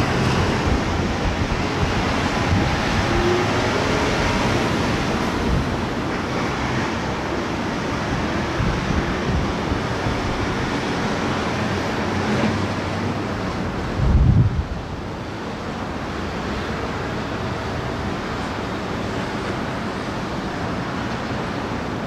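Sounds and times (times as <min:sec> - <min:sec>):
wind buffeting microphone: 0:00.0 - 0:12.7, 0:13.6 - 0:15.1
sea noise: 0:00.0 - 0:22.0.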